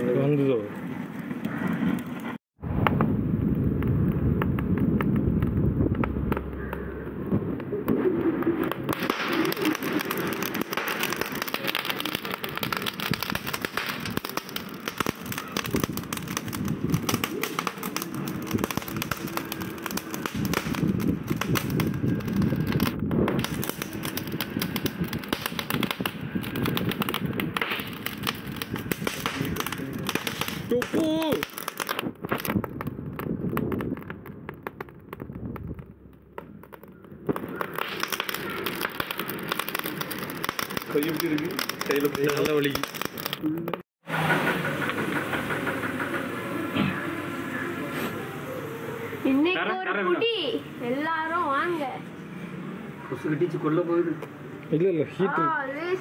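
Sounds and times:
charcoal crackling and popping: 0:00.0 - 0:43.8.

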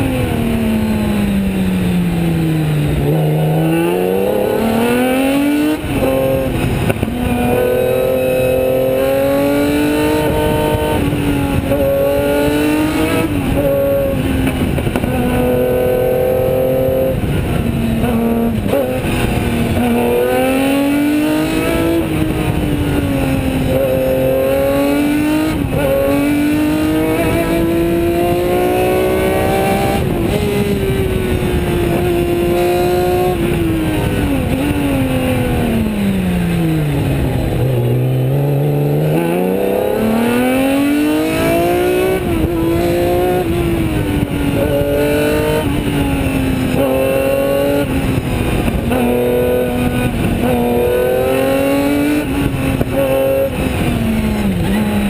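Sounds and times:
race car engine at full throttle: 0:00.0 - 0:55.0.

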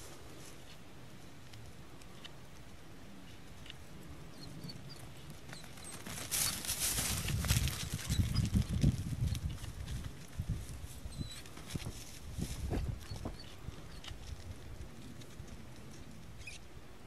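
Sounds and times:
running footsteps through grass: 0:05.0 - 0:16.4.

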